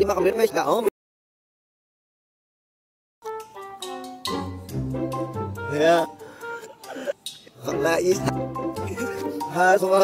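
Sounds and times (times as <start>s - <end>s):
instrumental background music: 3.2s - 10.0s.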